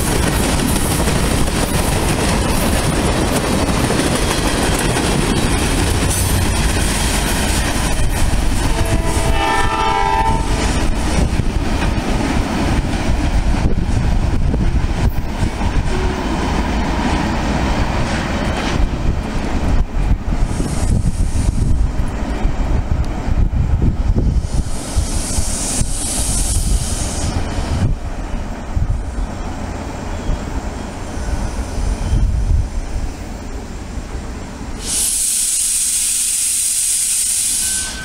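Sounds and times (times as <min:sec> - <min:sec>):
freight train wheels clattering: 0:00.0 - 0:23.1
train horn: 0:08.6 - 0:10.8, 0:15.9 - 0:16.4, 0:37.1 - 0:38.0.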